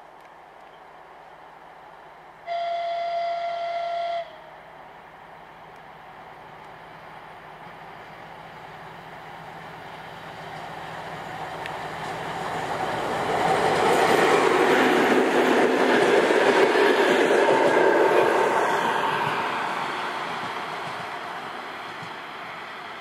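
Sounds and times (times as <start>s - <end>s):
diesel locomotive engine: 0.0s - 23.0s
wheels clattering on rails: 10.4s - 23.0s.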